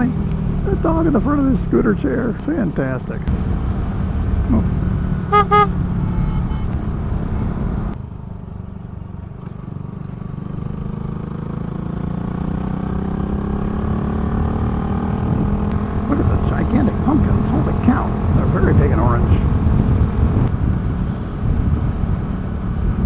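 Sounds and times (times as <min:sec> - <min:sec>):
horn beeps: 0:05.3 - 0:06.8
motorcycle engine running: 0:08.6 - 0:23.0
wind noise: 0:14.7 - 0:23.0.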